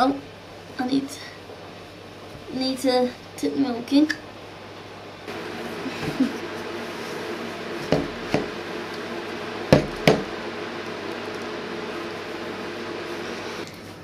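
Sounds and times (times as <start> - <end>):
sharp knocks: 9.7 - 10.3.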